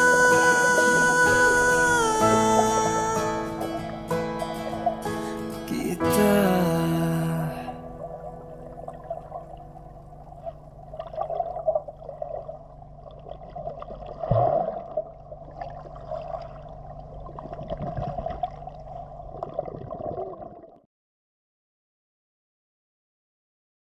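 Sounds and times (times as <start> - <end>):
muffled underwater water rush: 7.7 - 20.8
water gurgling and bubbling: 7.7 - 20.8.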